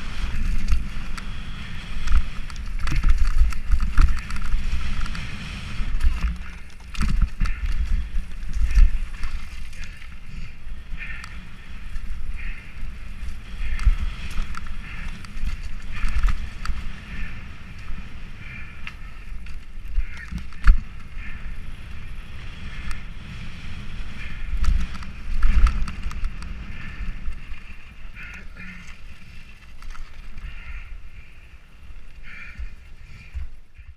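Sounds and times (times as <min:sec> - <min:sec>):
bike rattling over bumps: 0:00.0 - 0:33.9
wind rumbling on microphone: 0:00.0 - 0:33.9.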